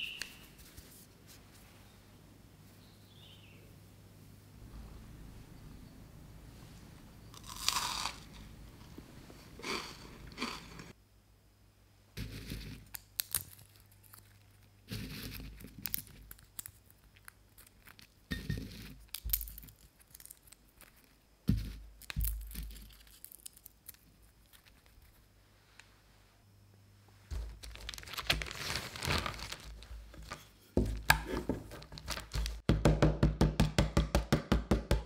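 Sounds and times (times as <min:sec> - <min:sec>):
peanut skins crunching and rustling: 0:07.3 - 0:10.9, 0:12.2 - 0:25.4, 0:27.3 - 0:32.6.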